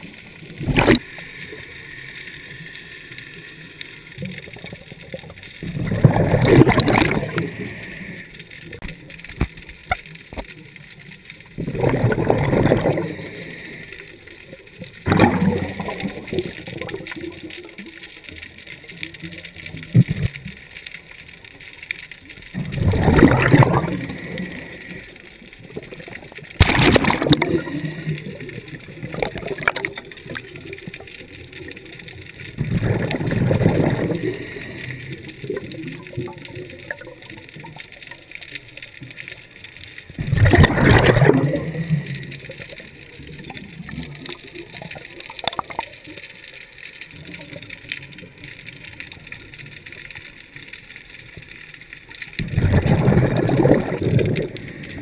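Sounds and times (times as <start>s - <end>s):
air bubbling underwater: 0.0s - 1.2s, 4.2s - 7.6s, 11.6s - 13.2s, 15.0s - 17.6s, 22.6s - 24.1s, 26.6s - 30.5s, 32.6s - 34.4s, 40.2s - 42.1s, 43.5s - 45.9s, 52.4s - 54.6s
faint hiss: 0.0s - 55.0s.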